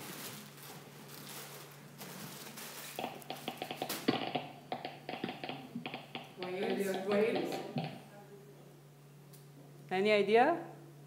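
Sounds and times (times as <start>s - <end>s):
geiger counter clicking: 3.0s - 8.0s.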